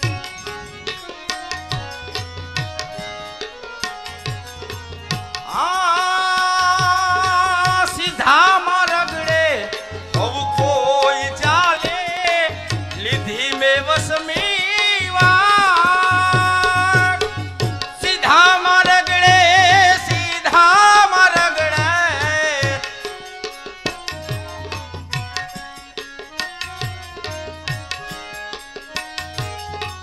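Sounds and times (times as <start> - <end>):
tabla-like drum beat: 0.0 - 30.0
man singing with vibrato: 5.0 - 25.8.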